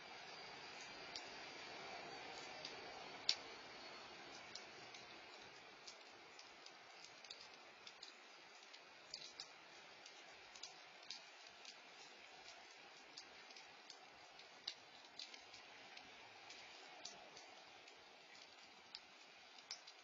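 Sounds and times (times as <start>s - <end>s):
faint steady hiss: 0.0s - 20.0s
small irregular clicks: 0.2s - 20.0s.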